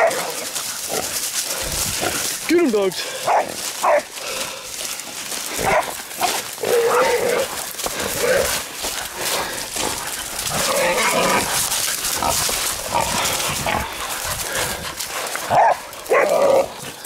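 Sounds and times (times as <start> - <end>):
dogs barking: 0.0 - 0.6, 3.1 - 4.2, 5.6 - 7.5, 10.0 - 17.0
rustling through dry scrub: 0.0 - 17.0
pig squealing: 10.6 - 11.5.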